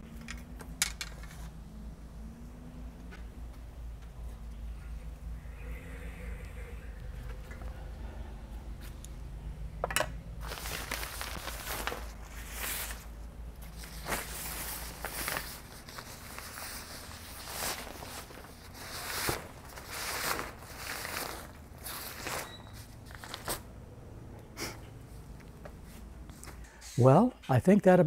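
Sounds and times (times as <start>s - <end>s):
fabric cover rustling and swishing: 13.7s - 23.6s.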